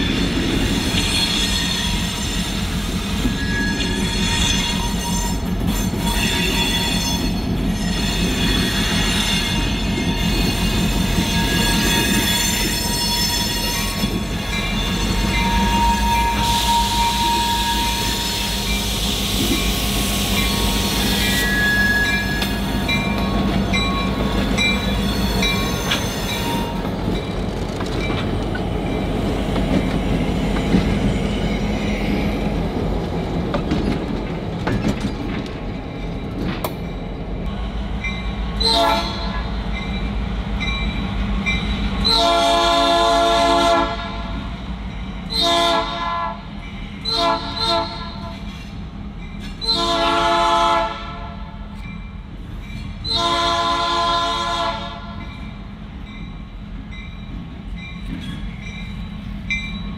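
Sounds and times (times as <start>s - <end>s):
diesel locomotive engines rumbling: 0.0s - 59.9s
wheel flanges squealing: 0.1s - 27.3s
train horn: 15.0s - 18.8s, 38.6s - 39.6s, 42.0s - 44.5s, 45.3s - 48.4s, 49.6s - 51.6s, 53.0s - 55.3s.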